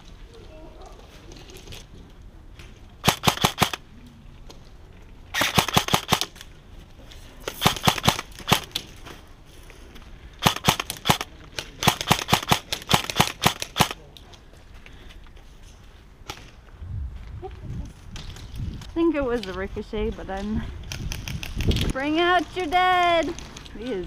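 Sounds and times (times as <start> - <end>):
airsoft rifle bursts: 3.0 - 3.8, 5.3 - 6.4, 7.6 - 8.8, 10.4 - 14.0.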